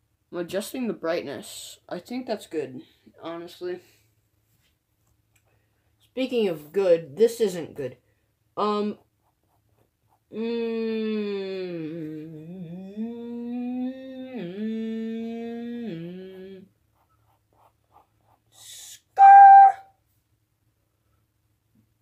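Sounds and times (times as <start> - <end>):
pencil strokes on paper: 8.8 - 10.3, 16.9 - 18.9
person humming a tune: 10.3 - 16.7.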